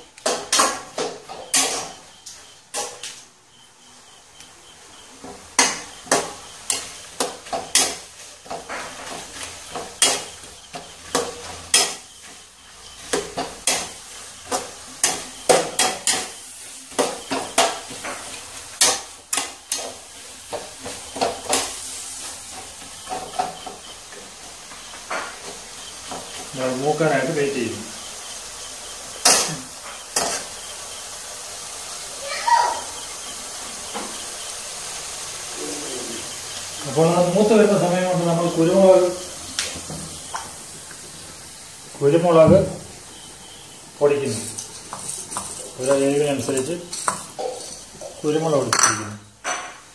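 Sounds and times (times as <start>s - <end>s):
food sizzling in oil: 0.0s - 49.9s.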